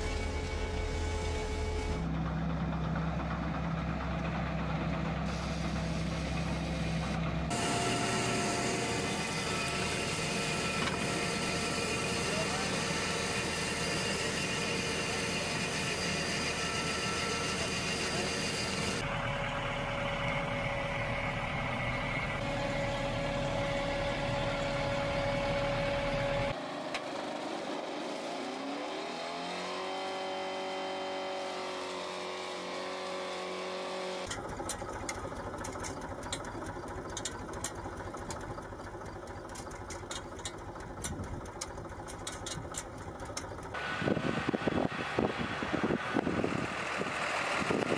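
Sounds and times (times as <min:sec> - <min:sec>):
tractor engines running: 0:00.0 - 0:47.9
sharp clicks and rattles: 0:34.3 - 0:43.8.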